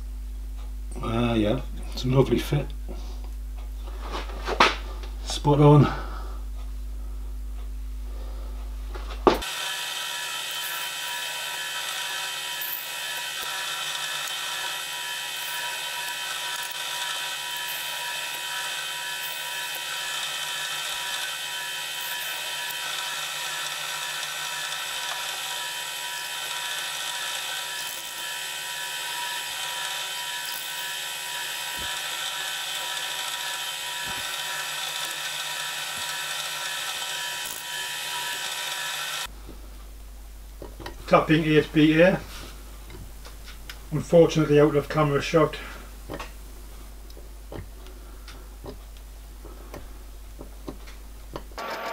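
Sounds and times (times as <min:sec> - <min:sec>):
drill whine: 0:09.4 - 0:39.3, 0:51.6 - 0:51.9.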